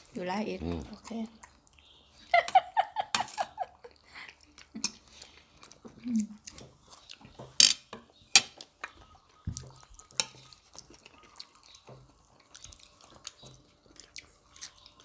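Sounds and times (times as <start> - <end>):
wet mouth eating sounds: 0.0 - 2.3, 3.8 - 7.4, 8.7 - 15.0
cutlery clinking on ceramic plates: 7.4 - 8.7, 10.1 - 10.5.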